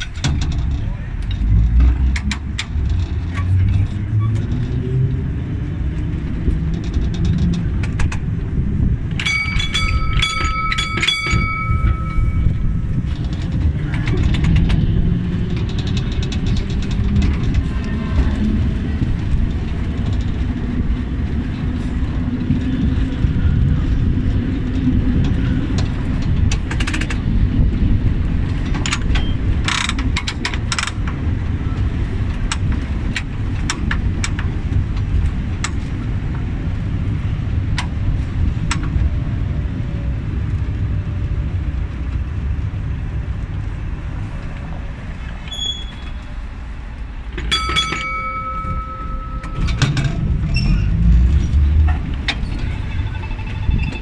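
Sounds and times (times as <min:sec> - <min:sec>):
tram rumbling on rails: 0:00.0 - 0:54.0
wheels clicking on track: 0:00.0 - 0:54.0.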